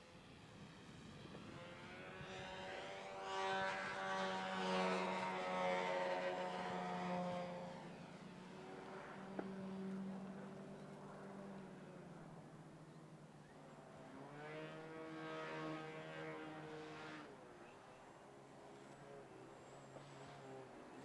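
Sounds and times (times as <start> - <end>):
model plane motor and propeller: 0.0 - 21.0.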